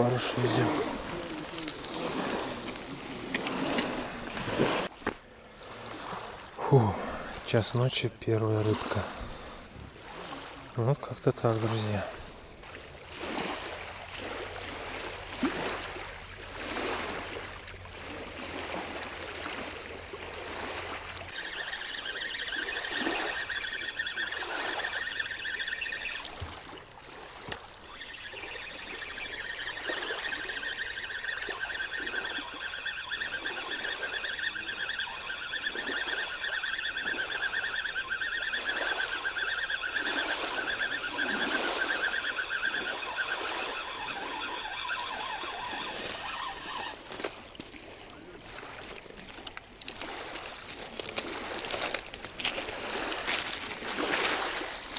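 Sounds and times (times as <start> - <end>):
small waves lapping: 0.0 - 54.9
insects chirring: 21.3 - 26.4, 27.7 - 46.9.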